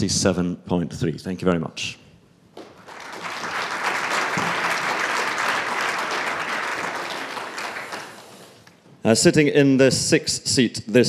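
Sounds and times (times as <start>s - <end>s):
audience applauding: 2.6s - 8.6s.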